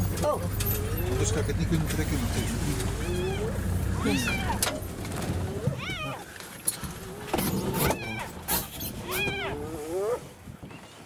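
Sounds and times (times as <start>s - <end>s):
hyena calling: 0.5s - 1.6s, 2.2s - 4.7s.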